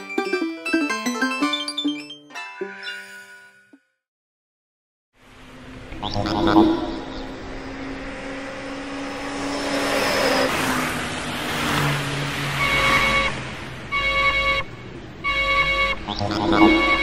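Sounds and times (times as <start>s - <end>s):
rushing noise: 5.2s - 14.0s
loud beeps: 12.6s - 17.0s.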